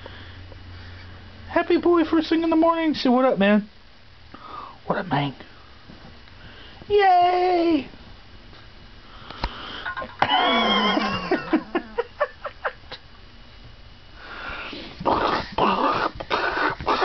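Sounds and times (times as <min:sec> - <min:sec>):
excited breathy huffs: 0:14.2 - 0:17.0.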